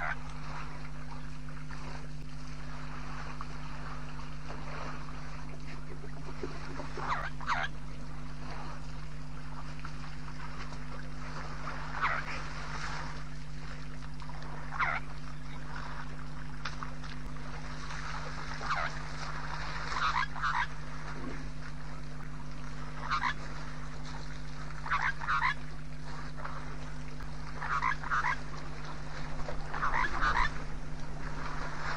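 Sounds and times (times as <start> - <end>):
low electrical hum: 0.0 - 31.9
short animal calls: 6.0 - 7.8, 11.9 - 12.6, 14.7 - 15.6, 19.8 - 21.5, 22.9 - 23.5, 24.8 - 25.7, 27.5 - 28.5, 29.7 - 30.7.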